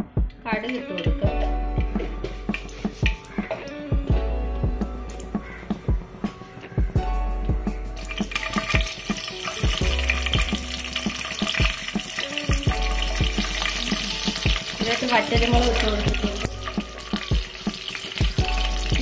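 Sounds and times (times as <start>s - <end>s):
background music: 0.0s - 19.0s
seeds sizzling in hot oil: 8.0s - 19.0s.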